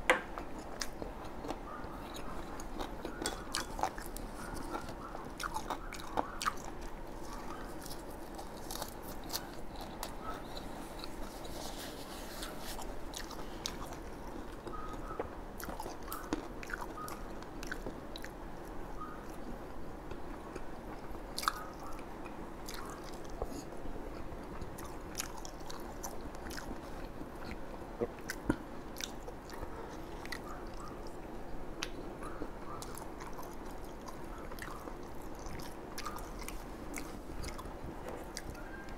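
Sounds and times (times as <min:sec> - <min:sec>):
man chewing and biting: 0:00.3 - 0:18.4, 0:31.8 - 0:38.6.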